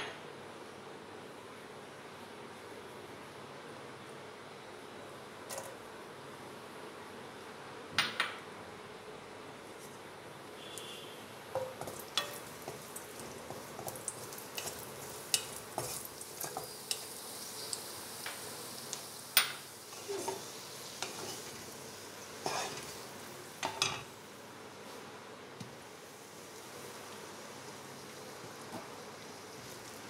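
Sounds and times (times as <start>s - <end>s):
faint sizzle of frying: 0.0s - 30.0s
wooden spatula scraping pan: 20.0s - 21.6s, 22.4s - 23.0s.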